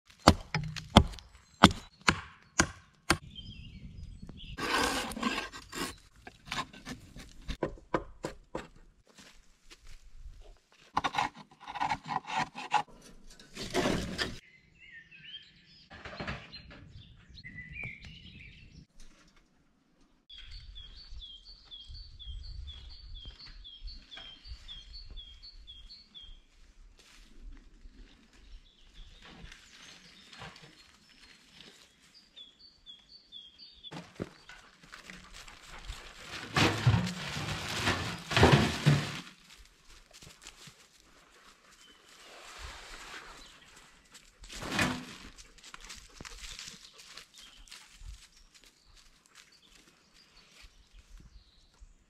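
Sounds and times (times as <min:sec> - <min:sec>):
axe chopping log: 0:00.1 - 0:03.2
wood scraping and knocking: 0:04.6 - 0:08.9, 0:10.9 - 0:14.4, 0:33.9 - 0:39.6, 0:44.5 - 0:45.4
birds chirping: 0:14.2 - 0:18.9.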